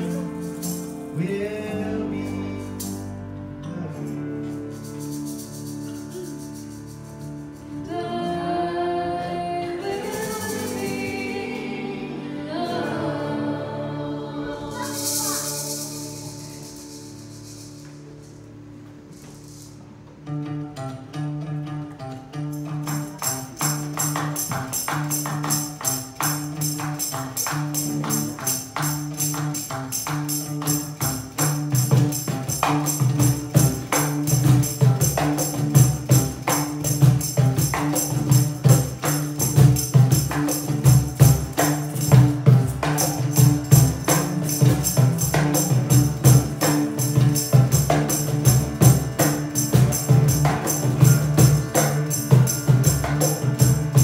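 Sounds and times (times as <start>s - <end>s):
hand percussion jingling: 0.0s - 1.4s, 4.0s - 7.8s, 14.6s - 19.9s, 22.6s - 54.0s
guitars playing low riff: 0.0s - 54.0s
drum strokes: 22.6s - 54.0s.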